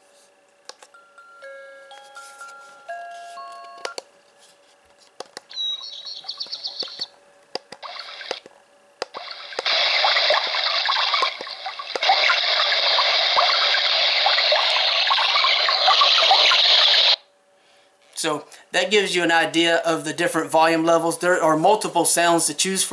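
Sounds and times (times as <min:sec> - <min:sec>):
running water from small speaker: 0:07.8 - 0:08.4, 0:09.1 - 0:17.2.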